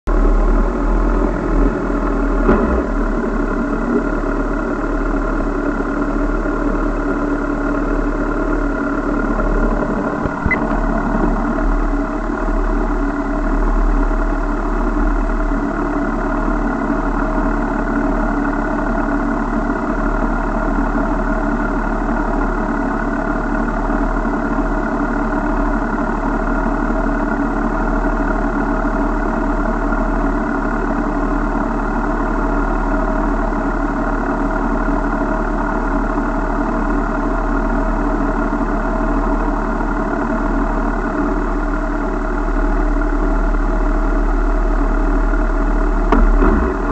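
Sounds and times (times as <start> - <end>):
vehicle engine idling: 0.1 - 46.9
brief clicks: 10.2 - 10.6.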